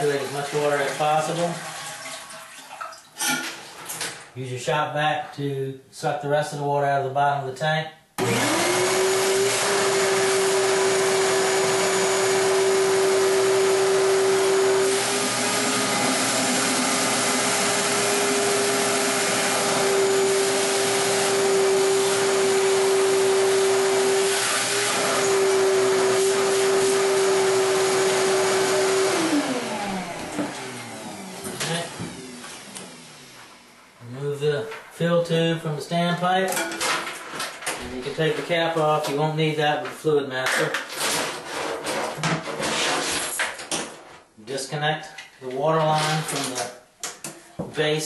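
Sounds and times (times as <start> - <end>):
vacuum sucking water: 0.0 - 2.6, 8.2 - 33.7
shop vac motor whine: 8.2 - 34.0.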